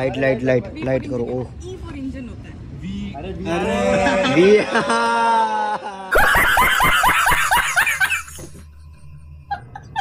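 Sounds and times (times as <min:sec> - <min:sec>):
person laughing: 0:04.4 - 0:08.6.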